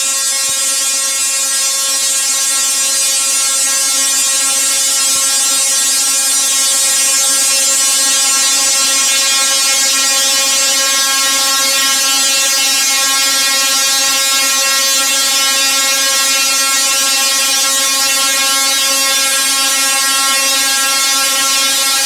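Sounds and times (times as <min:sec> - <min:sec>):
tesla coil buzzing: 0:05.6 - 0:22.0.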